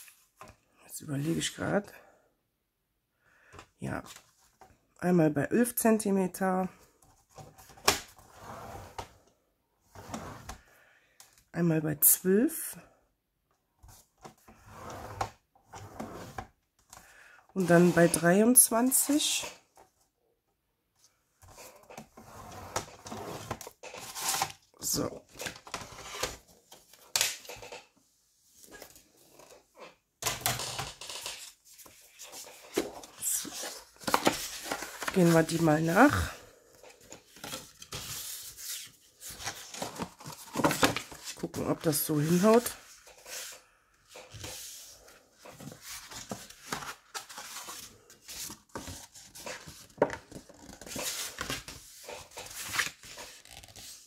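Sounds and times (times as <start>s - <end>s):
paper sheets clattering and rustling: 30.3s - 36.3s, 36.9s - 43.6s, 45.4s - 54.0s.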